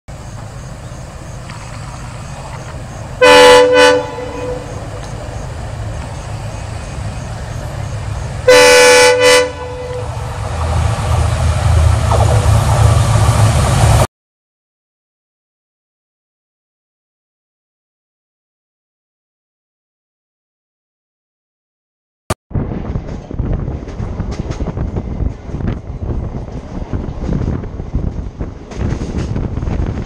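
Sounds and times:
diesel engine rumble: 0:00.1 - 0:14.1
locomotive horn blasts: 0:03.2 - 0:05.0, 0:08.4 - 0:10.2.

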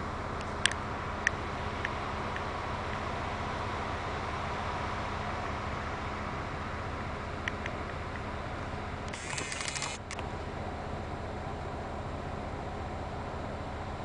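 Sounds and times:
camera zoom motor whirring: 0:09.1 - 0:10.2.

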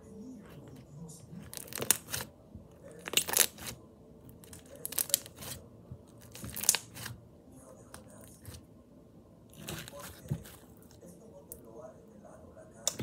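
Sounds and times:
plastic bag of slime crinkling: 0:01.4 - 0:02.3, 0:03.0 - 0:03.8, 0:04.4 - 0:05.6.

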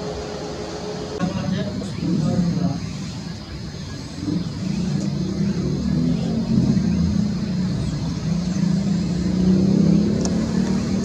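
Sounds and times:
jet engines running: 0:00.0 - 0:11.0.

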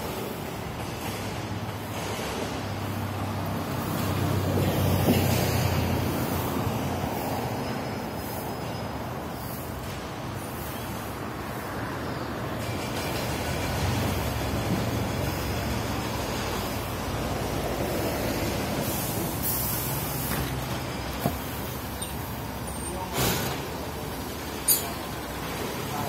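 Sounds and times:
bus engines rumbling: 0:00.0 - 0:26.0
air brake hisses: 0:18.8 - 0:20.3.

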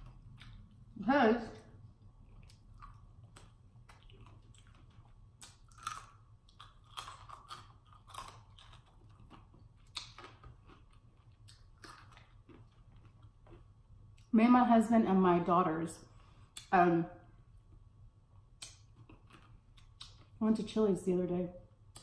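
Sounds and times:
chewing and biting: 0:02.0 - 0:14.3, 0:18.6 - 0:20.4.

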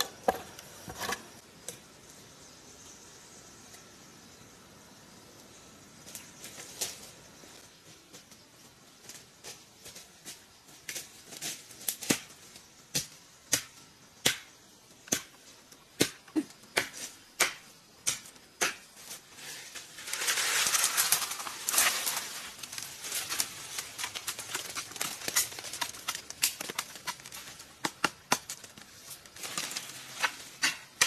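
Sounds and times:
hoe scraping dirt: 0:00.0 - 0:01.4, 0:19.1 - 0:31.0
hoe chopping dirt: 0:12.9 - 0:14.5, 0:15.1 - 0:18.9, 0:23.8 - 0:28.9, 0:29.6 - 0:31.0.

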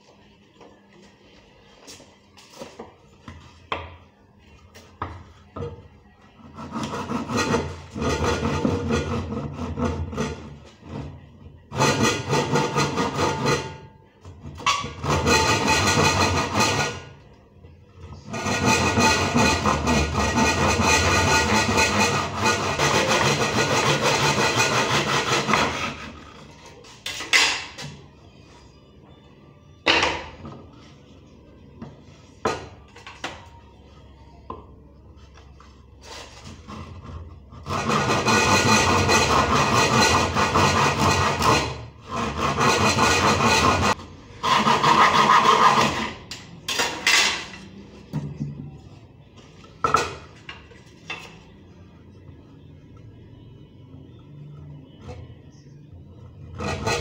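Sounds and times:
hand saw cutting wood: 0:06.4 - 0:11.0, 0:11.7 - 0:13.8, 0:14.8 - 0:17.1, 0:18.3 - 0:26.2, 0:36.0 - 0:46.2, 0:56.6 - 0:57.0.

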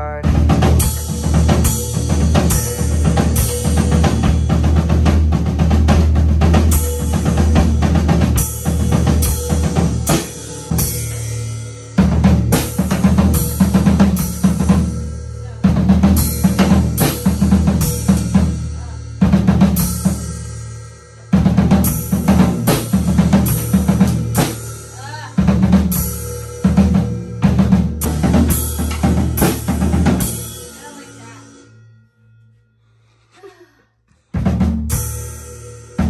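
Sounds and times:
drum kit played with sticks: 0:00.0 - 0:31.7, 0:34.2 - 0:36.0
cymbal crashes: 0:08.4 - 0:15.5.

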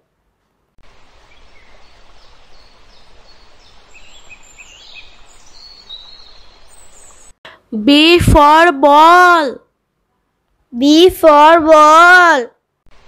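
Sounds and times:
outdoor ambient hiss: 0:00.0 - 0:13.0
high bird chirps: 0:02.5 - 0:07.4.

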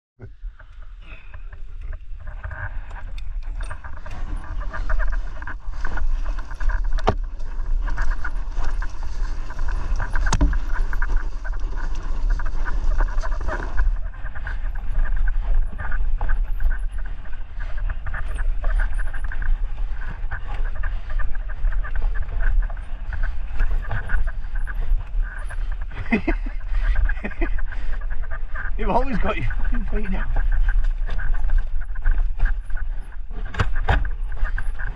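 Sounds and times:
wind buffeting microphone: 0:00.2 - 0:34.9
bike rattling: 0:00.3 - 0:34.9
tyres rolling over dirt: 0:03.6 - 0:16.7.

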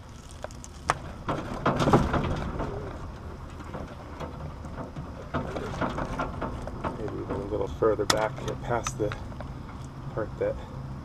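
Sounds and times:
wires crackling rustle: 0:00.0 - 0:10.2.

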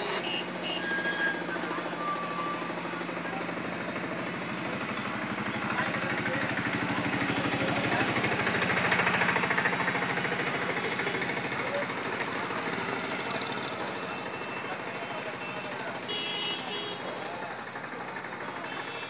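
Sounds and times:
vehicle engine running: 0:00.0 - 0:19.0.

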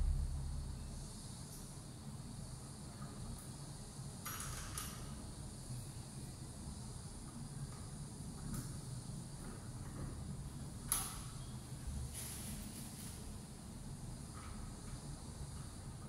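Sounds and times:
low steady hum: 0:00.0 - 0:03.4.

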